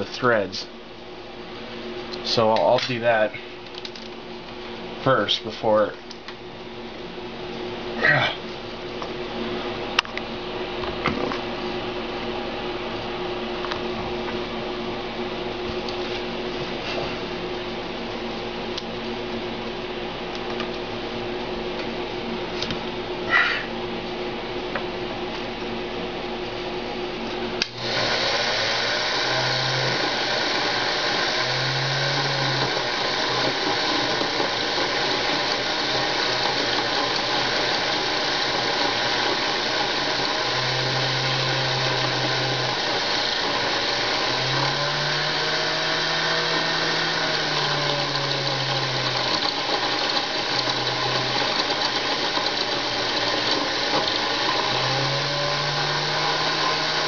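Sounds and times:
lathe motor running: 27.6 - 57.0.

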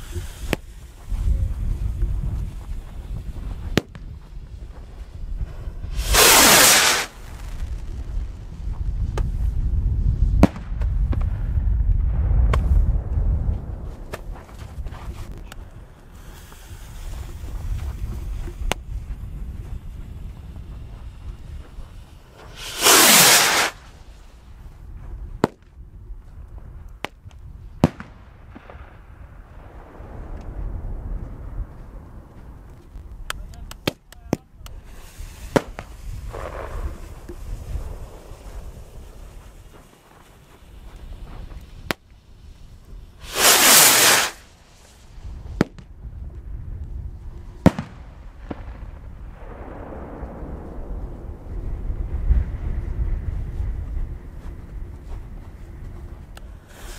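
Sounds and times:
firework rushing hiss: 0.0 - 9.6, 13.9 - 24.6, 34.6 - 46.0, 55.6 - 56.9
low wind rumble: 0.0 - 56.9
firework bangs: 5.8 - 9.5, 10.2 - 24.6, 27.8 - 46.0, 47.6 - 53.4.

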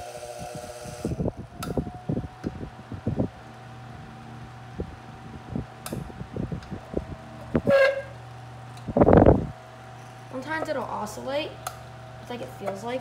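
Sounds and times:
desk fan motor hum: 0.0 - 13.0
fan knocking and clicking: 4.5 - 13.0.

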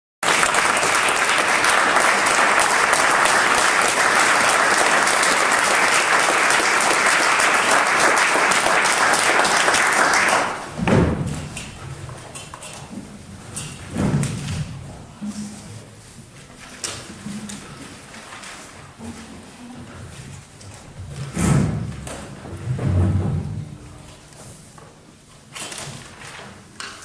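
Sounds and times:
audience applauding: 0.2 - 10.8.

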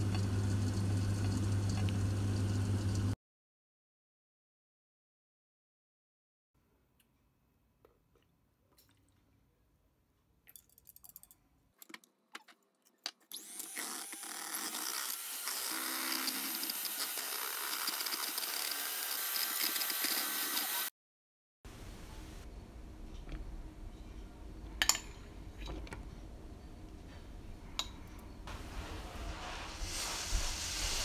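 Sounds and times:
electric hand mixer whisking: 13.4 - 20.9.

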